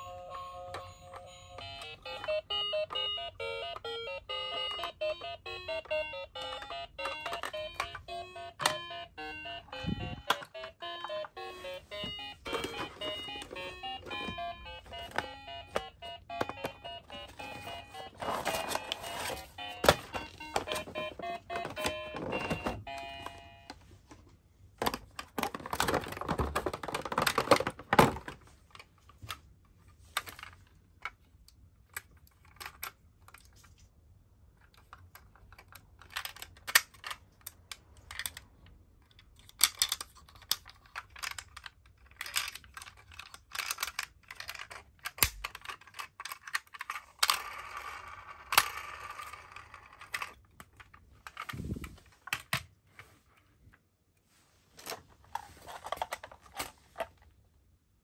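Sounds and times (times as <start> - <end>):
plastic packaging crinkling: 16.4 - 22.8.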